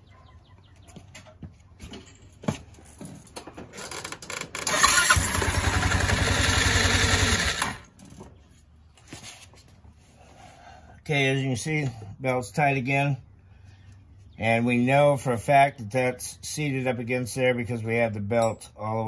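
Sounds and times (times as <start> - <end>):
scooter engine running: 4.1 - 7.9.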